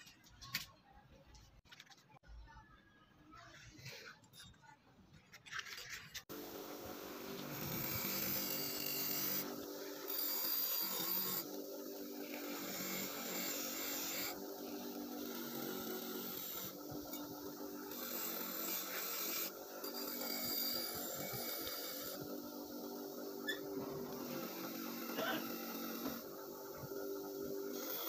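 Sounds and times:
bench grinder grinding steel: 6.3 - 28.0.

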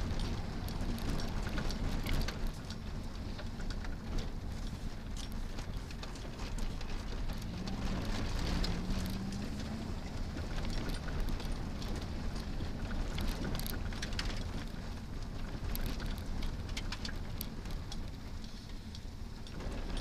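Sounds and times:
car engine running: 0.0 - 20.0
tyres rumbling on gravel: 0.0 - 20.0.

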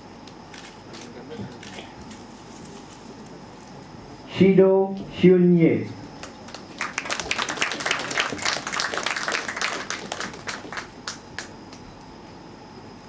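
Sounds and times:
audience applauding: 6.2 - 11.8.

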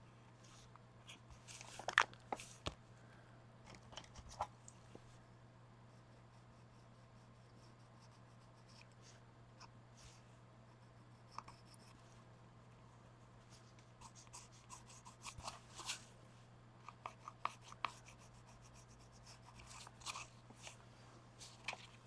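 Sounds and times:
low steady hum: 0.0 - 22.0
colouring scratching on paper: 14.0 - 16.0, 17.0 - 20.8.

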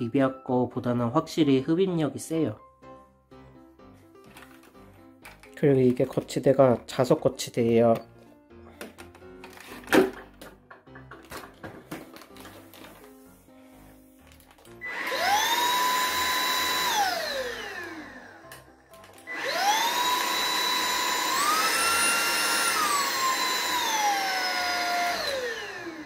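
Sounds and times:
vacuum cleaner motor whining: 13.8 - 26.0.

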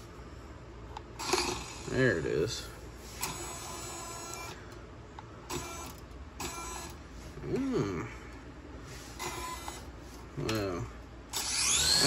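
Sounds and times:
toy helicopter rotor motors whining: 1.2 - 1.9, 3.2 - 4.6, 9.2 - 9.9, 11.3 - 12.0.

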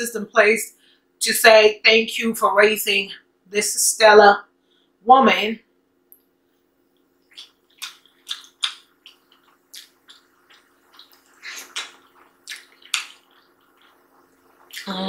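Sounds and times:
wet eating sounds: 7.2 - 15.0.

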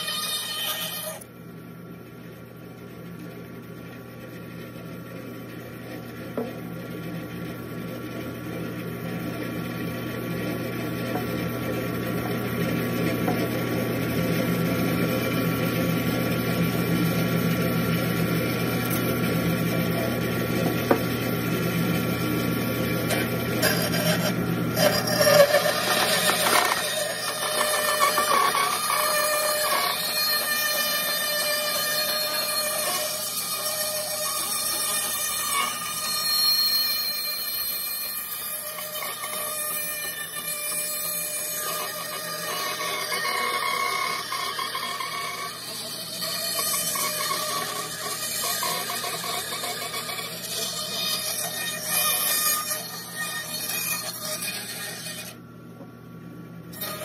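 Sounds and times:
bandsaw cutting wood: 0.0 - 1.2, 23.1 - 55.4, 56.8 - 57.0.

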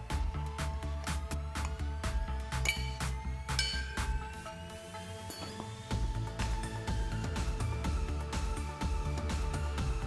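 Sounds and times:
electronic music with steady beat: 0.0 - 10.0
bright chiming notes: 2.5 - 5.9.

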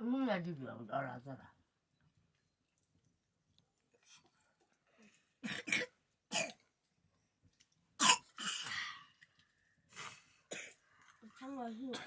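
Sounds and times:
person coughing: 10.5 - 10.8.

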